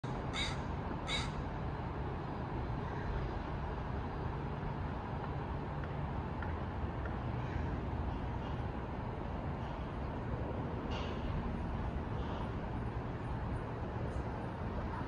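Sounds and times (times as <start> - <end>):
distant city traffic: 0.0 - 15.0
crow cawing: 0.3 - 1.4.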